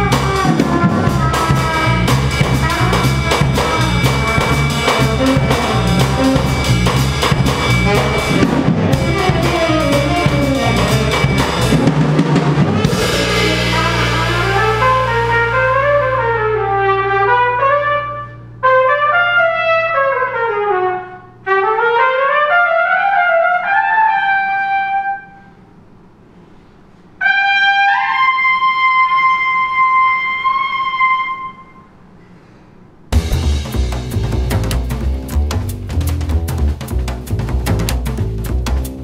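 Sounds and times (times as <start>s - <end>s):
trumpet solo: 0.0s - 25.5s, 27.2s - 31.9s
low held chord: 12.8s - 17.6s.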